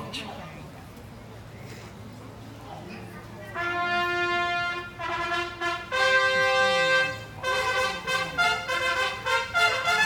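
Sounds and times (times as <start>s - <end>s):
orchestral brass playing: 3.5s - 10.0s.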